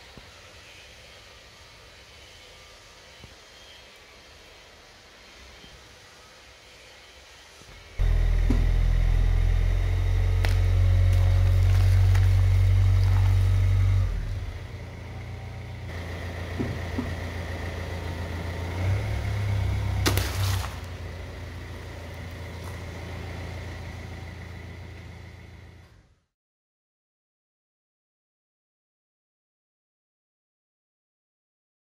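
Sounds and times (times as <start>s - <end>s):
car engine running: 8.0s - 26.0s.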